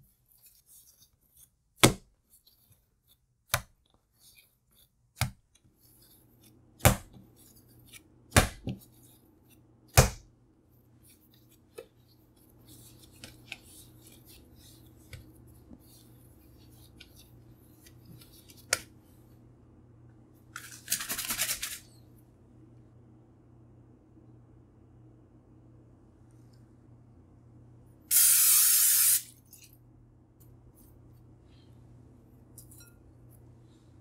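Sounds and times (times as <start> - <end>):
dough scratching and patting: 0.0 - 19.1.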